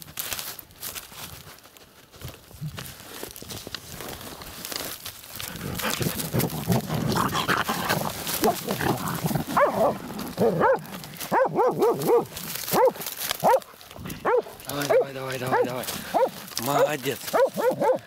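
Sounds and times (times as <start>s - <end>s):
dogs scratching in soil: 2.5s - 18.0s
dogs yelping barks: 5.6s - 18.0s.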